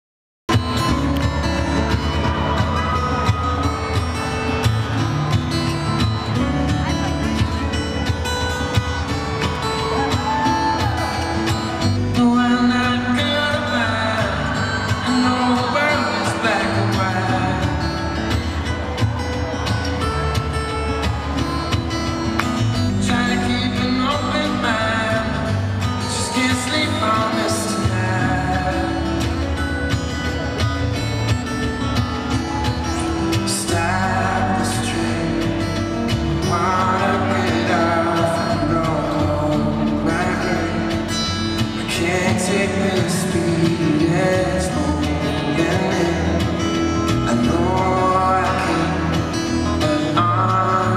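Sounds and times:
acoustic guitar through pa: 0:00.5 - 0:50.9
man singing: 0:08.6 - 0:19.3, 0:21.6 - 0:31.9, 0:32.9 - 0:50.9.

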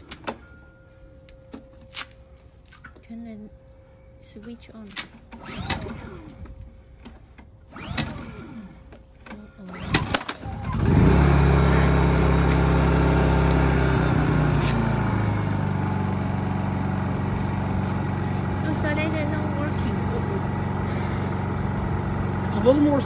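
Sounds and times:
generator engine running: 0:05.4 - 0:23.0
recoil starter rope pulls: 0:07.7 - 0:09.0.

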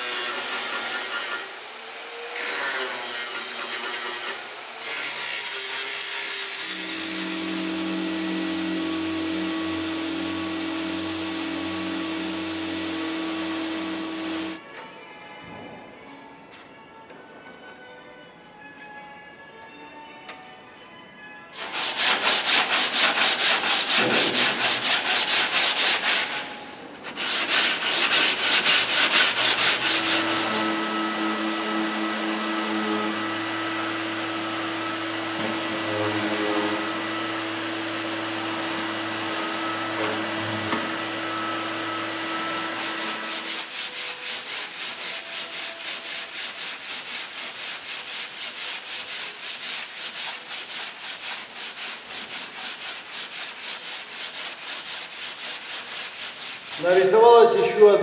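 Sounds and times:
hand sanding strokes: 0:00.0 - 0:14.6, 0:21.6 - 0:57.9
orbital sander running: 0:00.0 - 0:14.6, 0:27.2 - 0:47.1.

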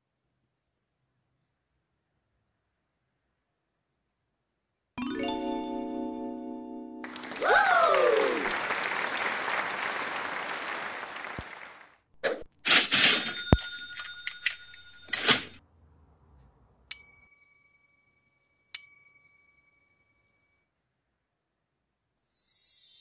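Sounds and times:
applause: 0:07.0 - 0:12.1
bell dings ringing out: 0:13.2 - 0:15.2, 0:16.9 - 0:20.6.

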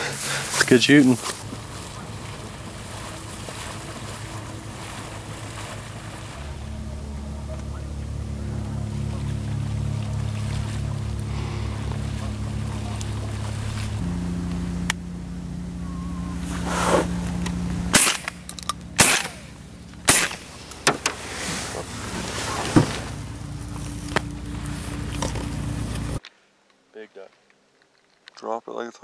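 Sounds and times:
low motor drone: 0:00.0 - 0:26.2
faint cracks: 0:17.3 - 0:28.5
shotgun shots: 0:17.9 - 0:18.4, 0:19.0 - 0:20.6.

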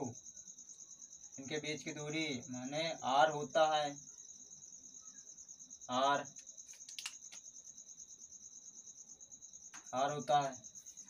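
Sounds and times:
cricket trilling: 0:00.0 - 0:11.0
faint clicks: 0:06.3 - 0:07.5.

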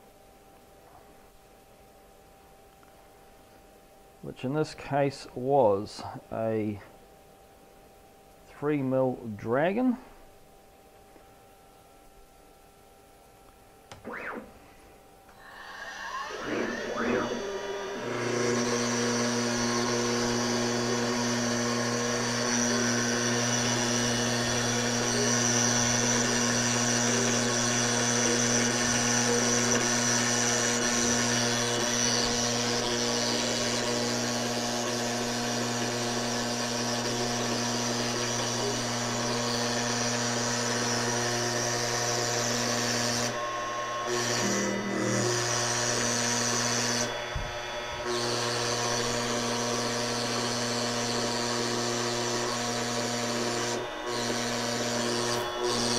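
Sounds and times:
router spindle whine: 0:13.9 - 0:55.9
router bit cutting: 0:15.4 - 0:55.9.

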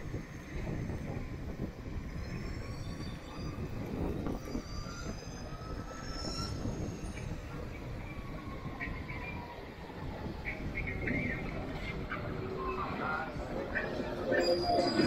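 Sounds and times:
wind and road rumble: 0:00.0 - 0:15.0
thin high-pitched whines: 0:13.9 - 0:15.0.

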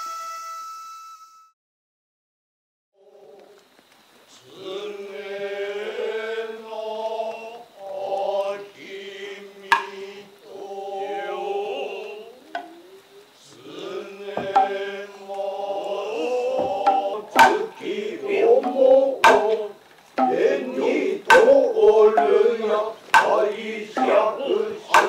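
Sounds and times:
male chanting on held notes: 0:04.3 - 0:25.0
hand drum strikes: 0:09.7 - 0:09.9, 0:14.4 - 0:14.8, 0:16.6 - 0:17.7, 0:18.6 - 0:22.3, 0:23.1 - 0:23.4.

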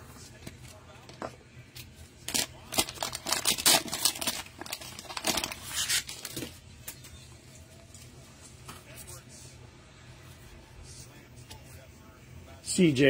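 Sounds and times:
plastic wrapper crinkling and tearing: 0:02.2 - 0:06.6.

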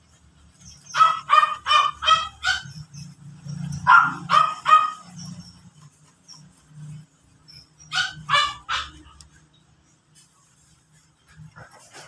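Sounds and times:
animal calling: 0:00.5 - 0:09.4.

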